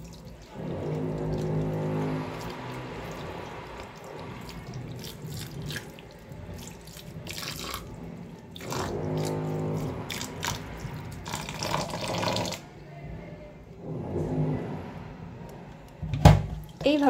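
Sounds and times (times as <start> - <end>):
irregular splashes: 0.0 - 12.8.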